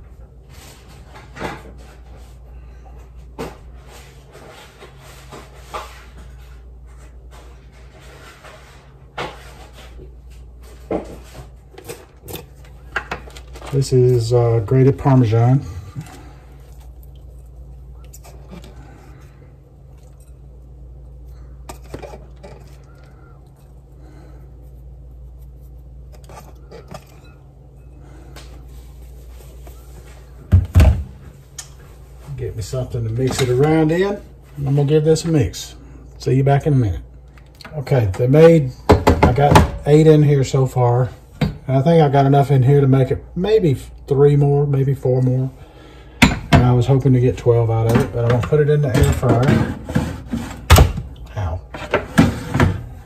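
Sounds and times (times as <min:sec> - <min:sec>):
steady low hum: 0:00.0 - 0:53.0
sharp kitchen knocks: 0:38.9 - 0:39.8, 0:46.2 - 0:46.8.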